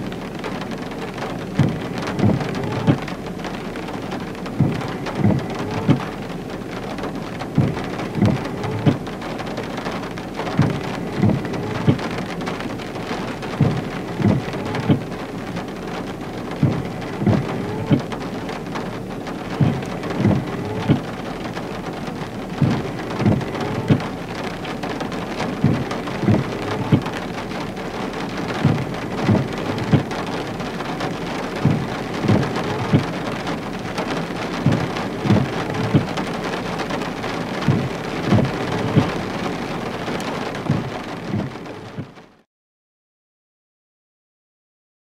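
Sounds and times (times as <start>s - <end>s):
rain hissing: 0.0s - 42.2s.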